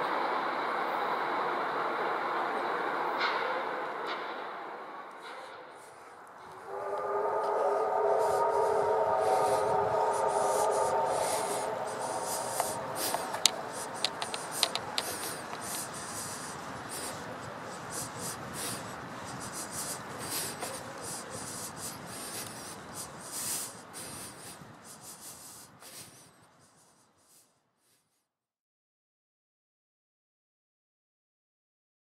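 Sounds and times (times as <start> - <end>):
steady hiss: 5.2 - 27.6
distant train whistle: 5.3 - 26.8
footsteps on asphalt: 10.3 - 23.2.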